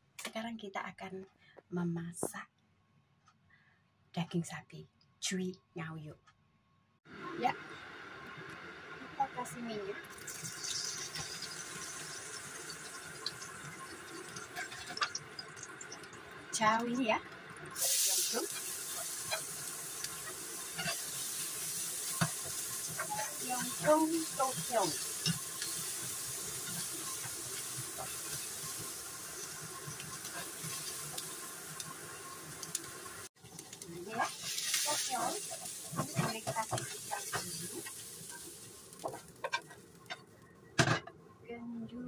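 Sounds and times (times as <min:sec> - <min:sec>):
oil sizzling in frying pan: 0:07.2 - 0:40.4
spatula scraping and tapping: 0:39.0 - 0:40.3.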